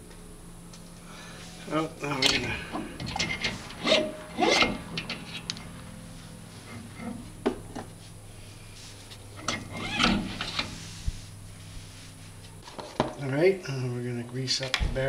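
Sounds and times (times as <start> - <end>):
rotor rasping whirr: 0.8 - 12.6
brake rotor rubbing and scraping: 1.3 - 12.9.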